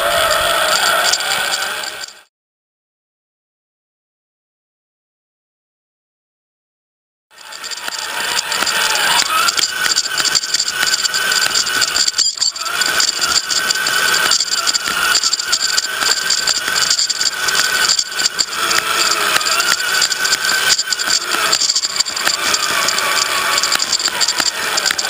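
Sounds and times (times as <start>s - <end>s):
chassis rattling and clicking: 0.0s - 2.3s, 7.4s - 25.0s
electric motor whining: 0.0s - 2.3s, 7.4s - 25.0s.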